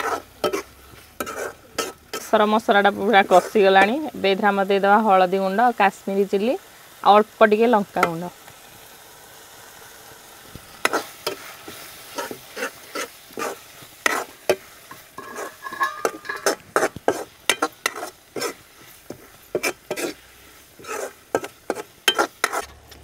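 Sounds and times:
steel spoon scraping metal pan: 0:00.0 - 0:04.1, 0:10.8 - 0:22.8
paste sizzling: 0:00.0 - 0:23.0.

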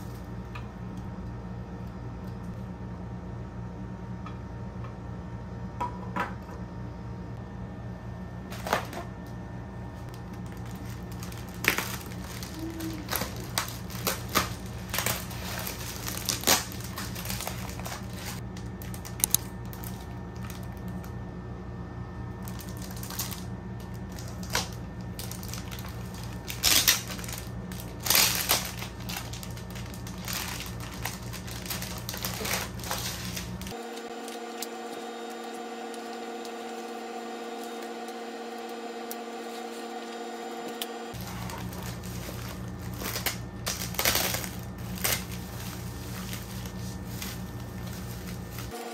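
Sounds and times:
steady low hum: 0:00.0 - 0:48.9
plastic packaging crinkling: 0:10.1 - 0:21.2, 0:22.4 - 0:39.9, 0:41.1 - 0:48.9.

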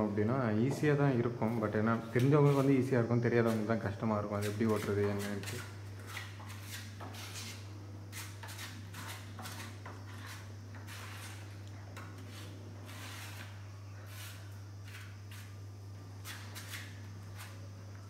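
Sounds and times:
steady low hum: 0:00.0 - 0:18.0
hand rubbing grout into joints: 0:01.4 - 0:15.6.

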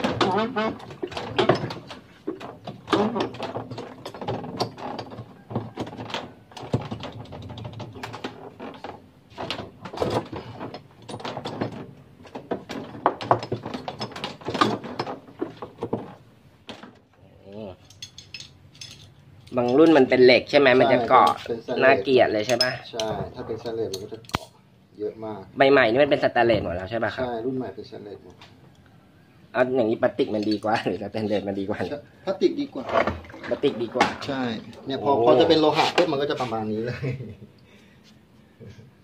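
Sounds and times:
plastic and metal parts clattering: 0:00.0 - 0:17.2, 0:17.8 - 0:20.1.

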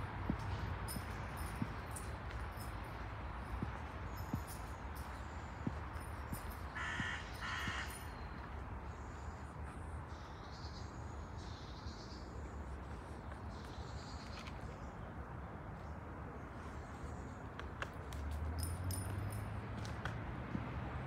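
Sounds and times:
small birds chirping: 0:00.3 - 0:15.0
crow cawing: 0:06.8 - 0:08.1.

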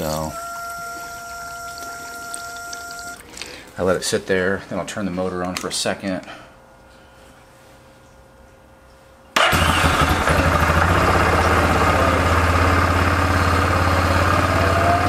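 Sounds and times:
engine starting and idling: 0:09.4 - 0:15.0.

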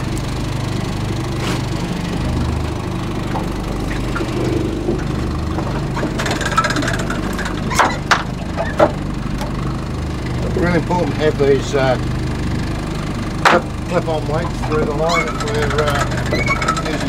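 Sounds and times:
outboard engine idling: 0:00.0 - 0:17.0
sharp knocks and clicks: 0:03.2 - 0:09.6, 0:13.4 - 0:13.8.

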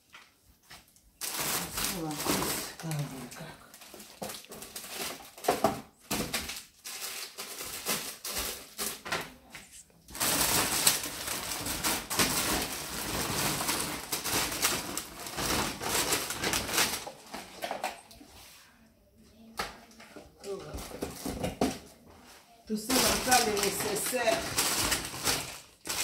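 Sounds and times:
plastic bag rustling: 0:00.0 - 0:18.0, 0:20.4 - 0:26.0.

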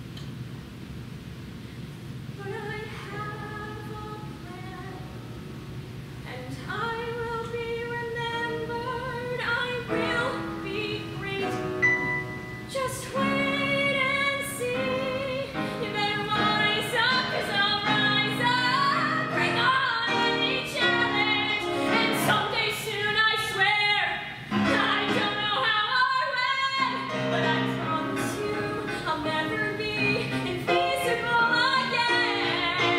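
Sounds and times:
girl singing: 0:02.4 - 0:05.3, 0:06.2 - 0:11.9, 0:12.6 - 0:32.9
keyboard chords: 0:09.9 - 0:13.9.

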